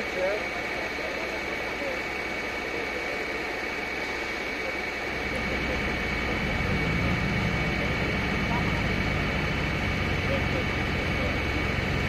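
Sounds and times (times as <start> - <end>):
diesel truck engine rumbling: 0.0 - 12.0
high-pitched whine: 0.0 - 12.0.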